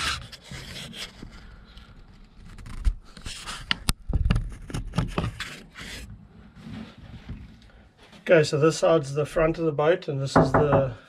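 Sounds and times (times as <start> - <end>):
wood board knocks and scrapes: 10.4 - 11.0.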